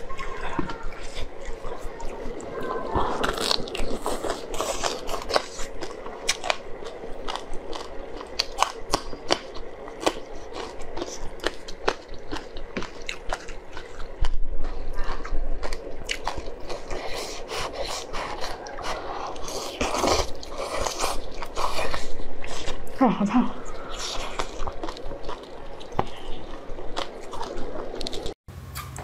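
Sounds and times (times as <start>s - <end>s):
crunching chili pepper: 0.0s - 22.8s, 23.6s - 28.4s
slurping noodles: 0.0s - 22.9s
chewing: 0.0s - 28.4s.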